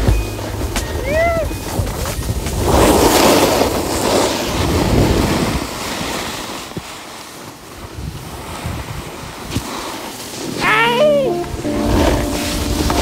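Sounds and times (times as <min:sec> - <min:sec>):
snowboard scraping through snow: 0:00.0 - 0:13.0
wind on microphone: 0:00.6 - 0:06.9, 0:07.8 - 0:09.8.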